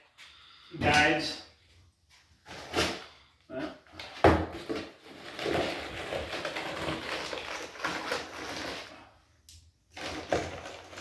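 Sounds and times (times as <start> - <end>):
parts rustling and clattering: 3.8 - 11.0.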